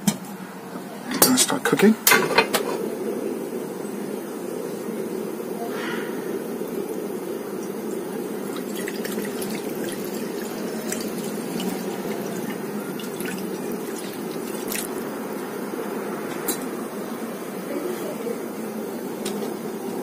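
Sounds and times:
steady low hum: 2.0 - 20.0
broth pouring and splashing: 7.1 - 15.7.

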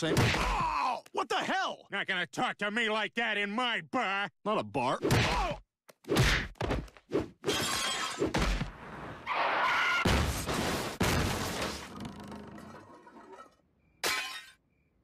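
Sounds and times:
glass breaking: 7.5 - 8.4, 12.5 - 14.6
car smashing into house: 10.0 - 11.9.

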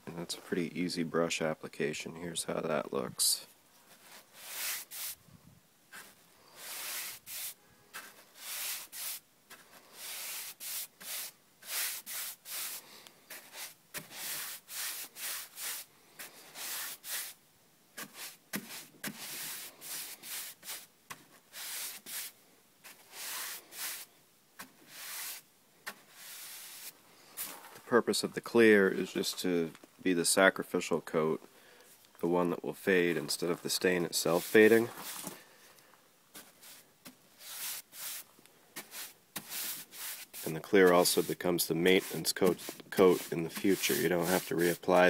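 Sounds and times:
paintbrush swishing over wood: 3.9 - 5.2, 5.9 - 17.4, 18.0 - 27.9, 32.9 - 35.4, 36.3 - 45.0.

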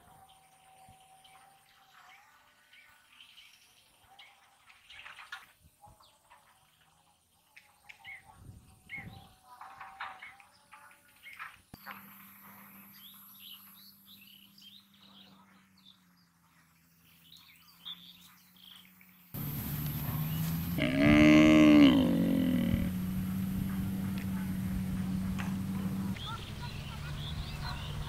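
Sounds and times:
outdoor noise: 0.0 - 28.0
small birds chirping: 10.3 - 28.0
cow mooing: 19.4 - 26.2.

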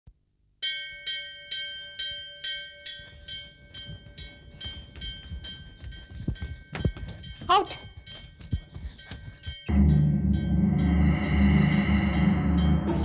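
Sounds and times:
temple bell ringing: 0.6 - 13.0
running footsteps thudding: 3.4 - 10.1.

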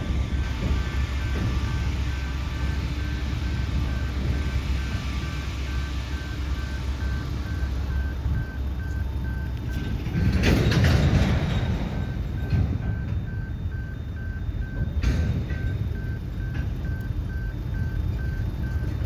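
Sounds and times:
train wagons rumbling on rails: 0.0 - 19.0
wheel clatter: 8.2 - 14.1.

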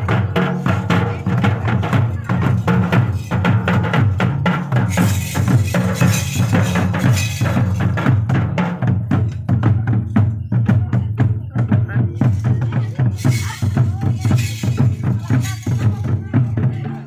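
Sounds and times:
hand drumming on barrel drum: 0.0 - 17.0.

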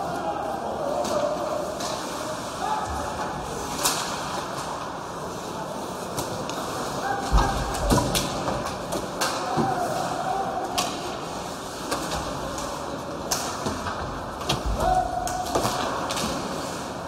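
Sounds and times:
people shouting: 0.0 - 1.8, 2.4 - 3.3, 7.0 - 8.1, 9.2 - 11.2, 14.6 - 15.9
hockey sticks clacking on puck: 0.8 - 5.1, 6.0 - 17.0.

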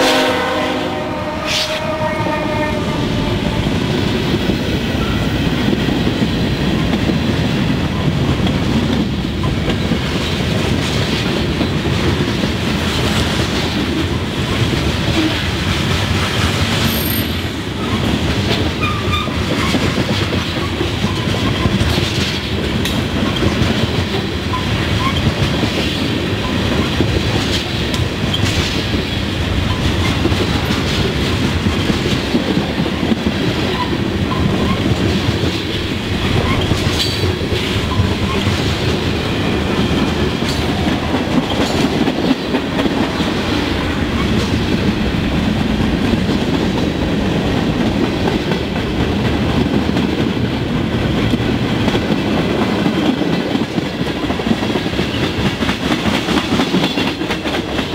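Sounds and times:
freight train rolling past: 0.0 - 57.9
wheels clacking over rail joints: 17.8 - 57.9.

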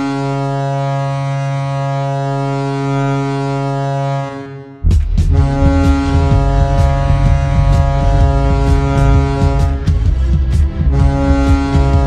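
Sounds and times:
deep goal horn blast: 0.0 - 12.0
heavy low music beats: 4.8 - 12.0.

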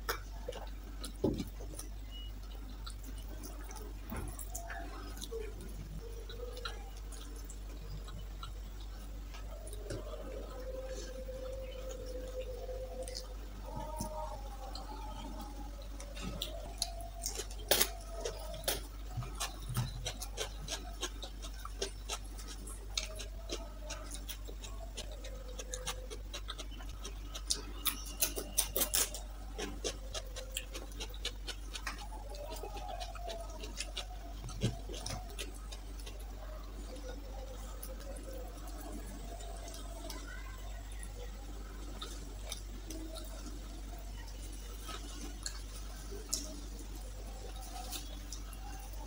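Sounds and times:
fingers picking at food: 0.0 - 38.9
steady low hum: 0.0 - 49.0
wet chewing and lip smacks: 16.1 - 40.2.

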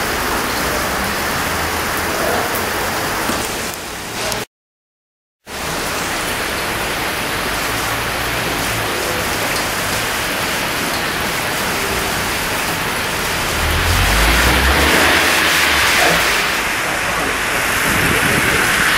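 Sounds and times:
heavy rain on road: 0.0 - 4.5, 5.5 - 18.9
low rumble: 12.2 - 18.4.

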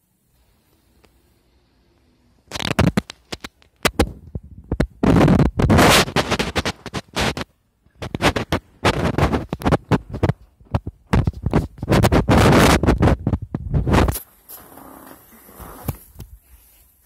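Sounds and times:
phone microphone handling noise: 2.5 - 16.5.

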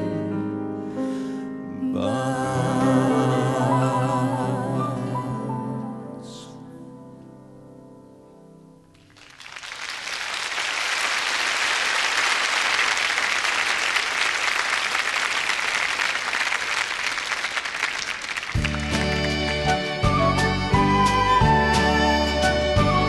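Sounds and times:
audience applauding: 9.0 - 20.2
band playing music: 18.6 - 23.0.

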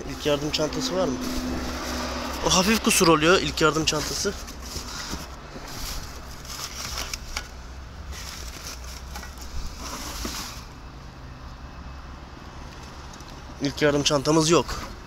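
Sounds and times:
plastic bags rustling: 0.0 - 10.8.

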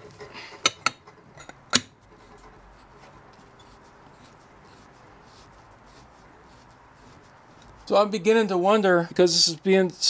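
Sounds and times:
gloved hand rubbing metal nut: 0.0 - 8.0.

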